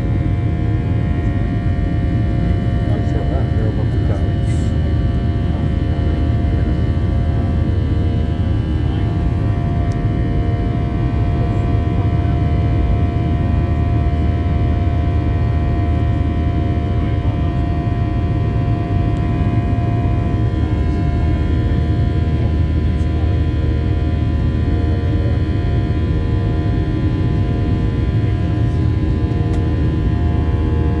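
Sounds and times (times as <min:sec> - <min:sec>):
airliner cabin rumble: 0:00.0 - 0:31.0.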